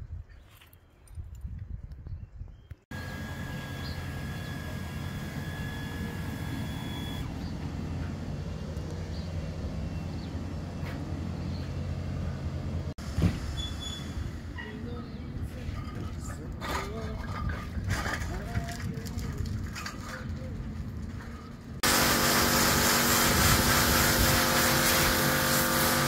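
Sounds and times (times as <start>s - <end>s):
thin high whine: 2.9s - 7.3s
low engine drone: 2.9s - 13.0s.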